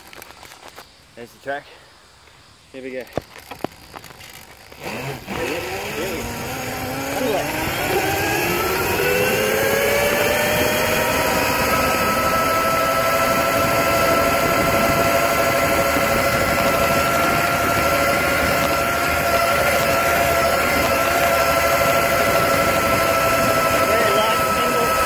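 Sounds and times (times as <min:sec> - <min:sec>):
wind and tyre noise: 0:02.1 - 0:25.0
electric motor whining: 0:03.3 - 0:25.0.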